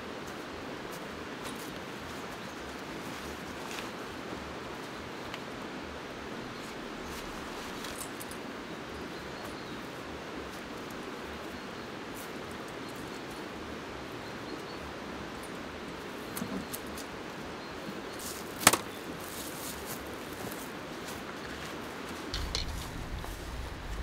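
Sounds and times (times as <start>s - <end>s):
river flowing: 0.0s - 16.2s, 19.1s - 24.0s
camp gear clicking: 7.0s - 8.4s, 18.6s - 19.0s, 22.3s - 24.0s.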